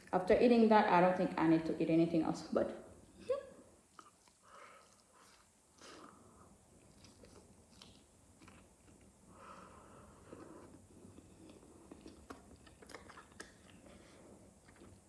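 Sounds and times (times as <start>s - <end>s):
close-up chewing: 3.8s - 15.0s
lip smacks: 10.7s - 15.0s.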